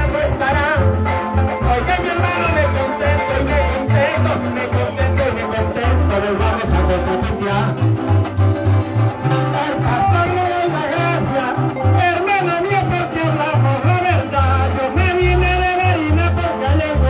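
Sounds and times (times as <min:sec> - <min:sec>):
man singing into microphone: 0:00.0 - 0:08.2, 0:09.2 - 0:17.0
bass line: 0:00.0 - 0:17.0
maracas: 0:00.0 - 0:17.0
plucked strings: 0:00.0 - 0:17.0.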